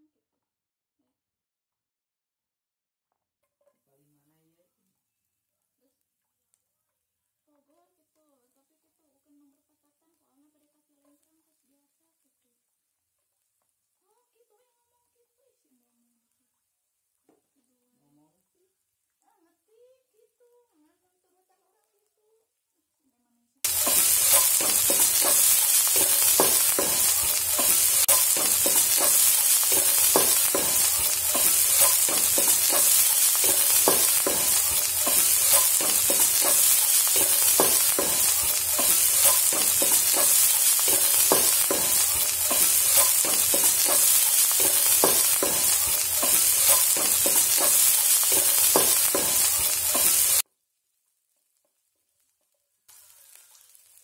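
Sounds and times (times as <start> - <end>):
shallots and garlic sizzling in oil: 23.6 - 54.0
spatula scraping and knocking pan: 23.7 - 50.4.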